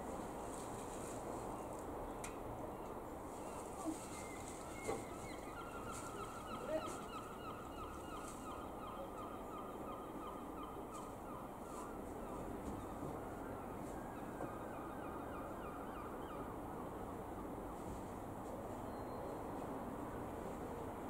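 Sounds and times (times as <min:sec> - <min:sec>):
bird calling: 0:02.8 - 0:13.0.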